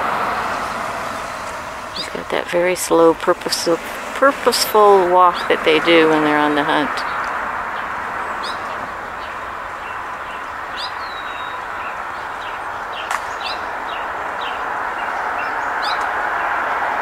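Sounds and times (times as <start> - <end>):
steady rushing noise: 0.0 - 17.0
small songbirds chirping: 6.4 - 16.6.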